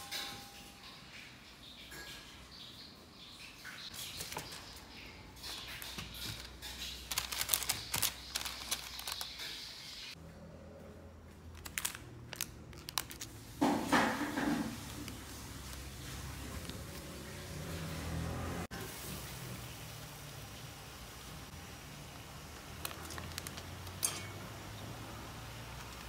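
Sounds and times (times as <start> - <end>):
parchment paper rustling: 3.9 - 10.2, 11.5 - 18.2, 22.1 - 24.1.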